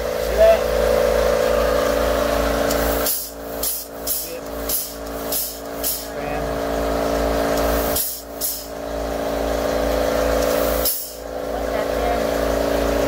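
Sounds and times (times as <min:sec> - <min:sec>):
dispensing gun motor running: 0:00.0 - 0:13.0.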